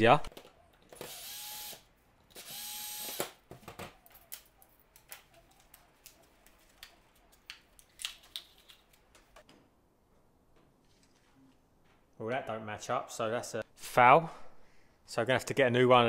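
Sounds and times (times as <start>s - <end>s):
drill-driver whirring: 0.9s - 3.4s.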